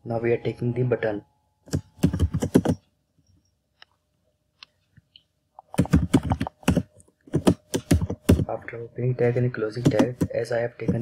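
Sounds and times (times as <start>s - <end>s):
keyboard typing: 1.7s - 2.8s, 5.6s - 8.6s, 9.7s - 11.0s.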